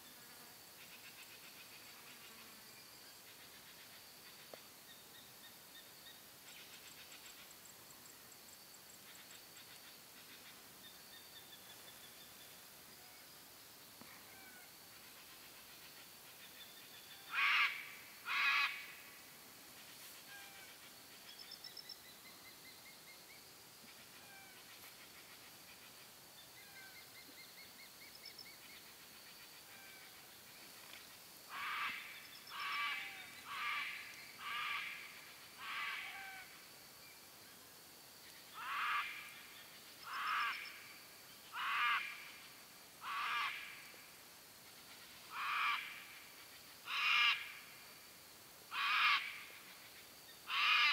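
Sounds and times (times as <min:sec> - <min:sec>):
faint chirping trills: 0:19.7 - 0:31.0.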